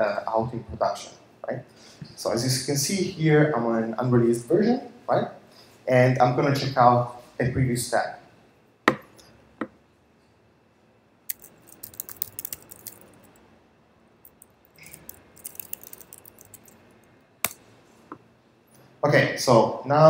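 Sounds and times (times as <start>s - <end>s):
computer keyboard typing: 11.3s - 13.3s, 14.3s - 16.8s.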